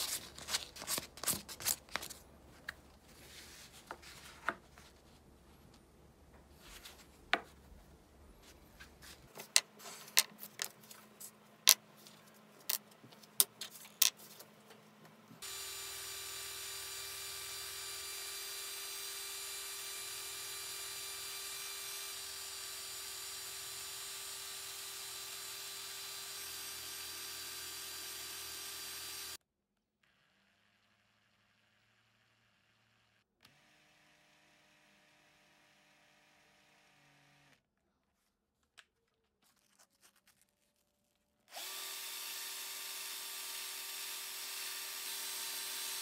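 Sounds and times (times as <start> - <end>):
cordless drill running: 15.4 - 29.4, 33.4 - 37.6, 41.5 - 46.0
drill bit grinding on sandpaper: 15.4 - 29.4.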